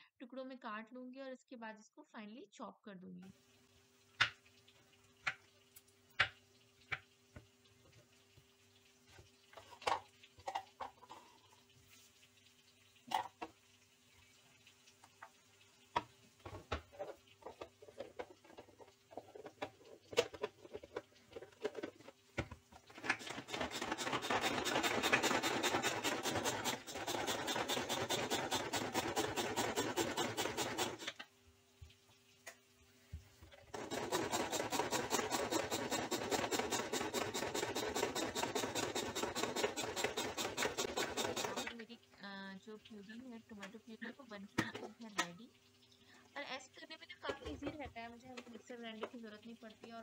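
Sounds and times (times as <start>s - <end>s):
hand-pulled food chopper whirring: 23.0s - 31.2s, 33.7s - 41.8s
knife scraping: 23.1s - 31.1s, 33.9s - 41.7s.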